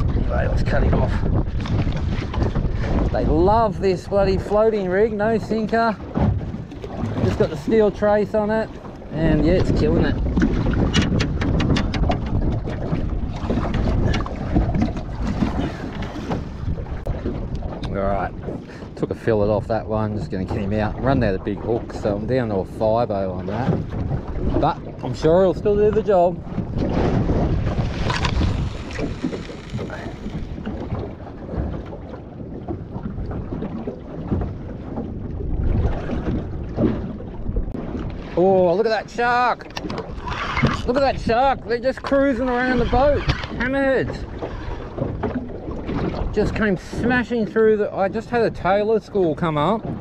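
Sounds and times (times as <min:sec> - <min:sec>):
water lapping against boat hull: 0:00.0 - 0:50.0
wind buffeting microphone: 0:00.0 - 0:50.0.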